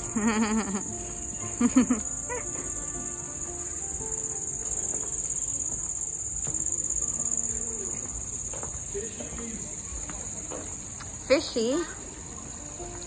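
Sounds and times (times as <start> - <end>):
crickets chirping: 0.0 - 13.0
faint background music: 0.0 - 13.0.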